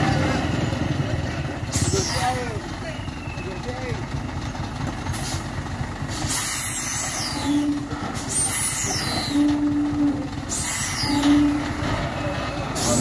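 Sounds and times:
diesel truck running slowly: 0:00.0 - 0:13.0
air brakes hissing: 0:05.1 - 0:05.5, 0:06.1 - 0:09.6, 0:10.5 - 0:11.8, 0:12.7 - 0:13.0.

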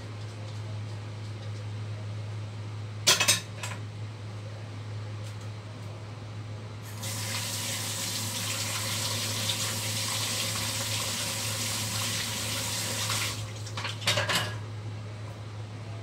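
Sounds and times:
tap water running into sink: 0:07.0 - 0:14.2.

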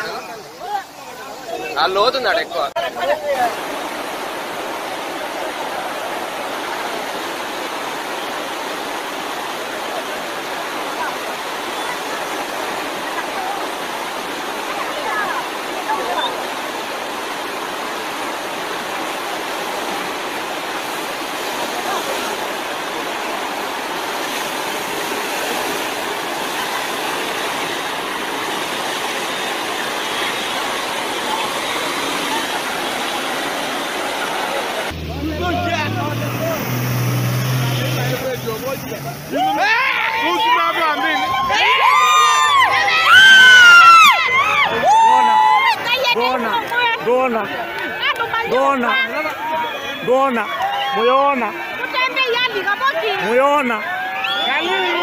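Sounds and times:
floodwater rushing: 0:00.0 - 0:55.0.

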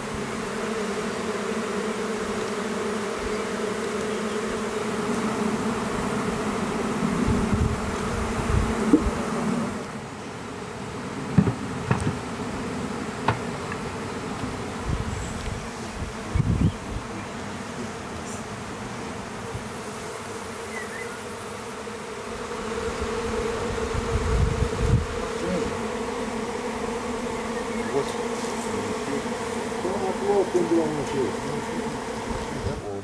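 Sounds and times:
bees buzzing: 0:00.0 - 0:33.0.

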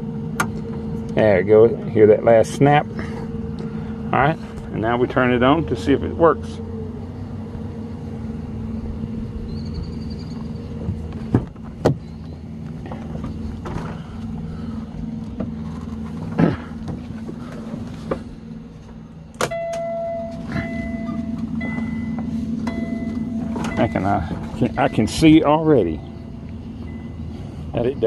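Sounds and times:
diesel truck engine idling: 0:00.0 - 0:28.0
knocks and clicks in cab: 0:10.8 - 0:14.0, 0:18.9 - 0:24.0
two-tone electronic chime: 0:19.5 - 0:27.2.

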